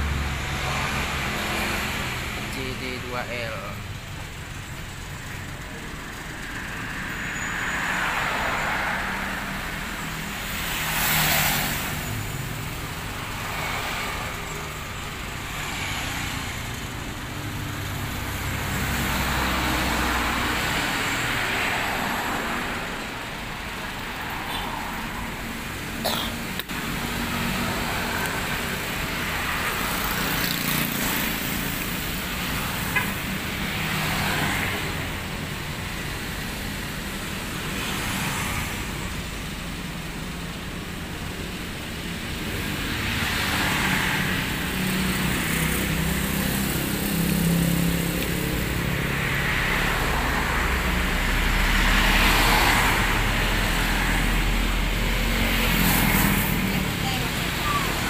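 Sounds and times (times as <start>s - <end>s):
truck engine rumble: 0.0s - 10.9s
motor scooters passing: 5.3s - 36.7s, 42.5s - 58.0s.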